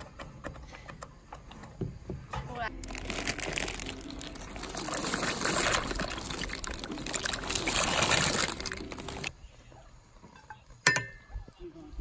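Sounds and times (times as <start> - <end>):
dry pasta pouring into pot: 2.8 - 9.3
bubbling water: 3.0 - 9.3.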